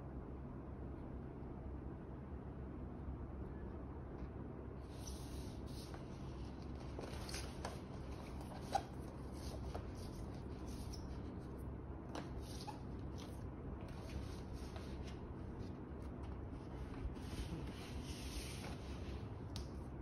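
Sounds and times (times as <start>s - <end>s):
paper rustling and crinkling: 5.0s - 11.6s.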